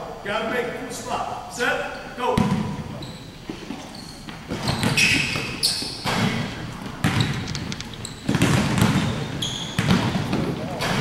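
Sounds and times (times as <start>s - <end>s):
basketball bouncing on hardwood floor: 2.4s - 2.8s, 4.3s - 11.0s
sneakers squeaking on court: 2.4s - 11.0s.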